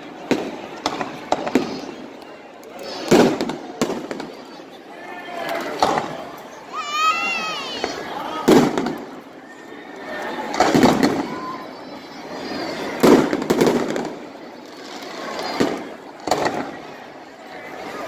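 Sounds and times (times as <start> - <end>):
fireworks bursting: 0.0 - 4.8, 7.4 - 9.4, 10.5 - 17.6.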